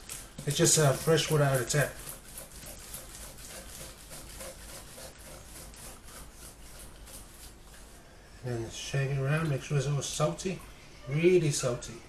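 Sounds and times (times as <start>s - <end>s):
soft rhythmic scraping: 0.0s - 8.7s.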